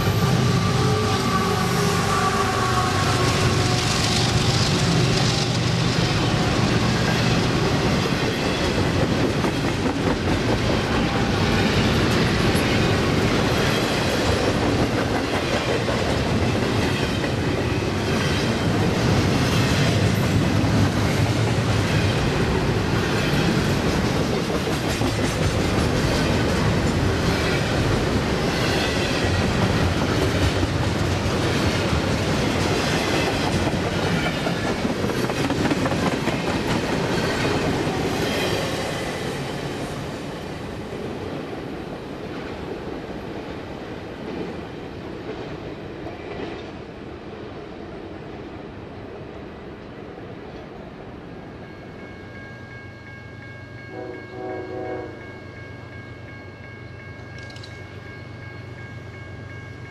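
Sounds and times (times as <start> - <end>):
freight train rumbling past: 0.0 - 59.9
train wheels clattering: 23.0 - 38.8, 57.2 - 57.9.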